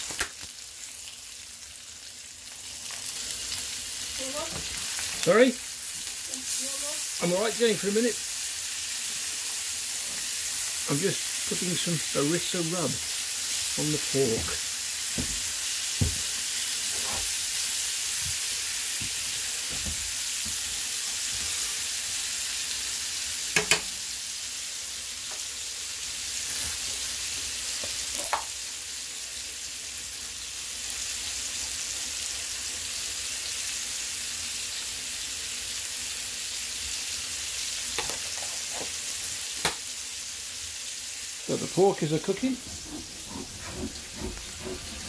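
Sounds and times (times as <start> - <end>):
meat sizzling in a frying pan: 0.0 - 45.0
tongs clicking against pan: 23.6 - 23.9.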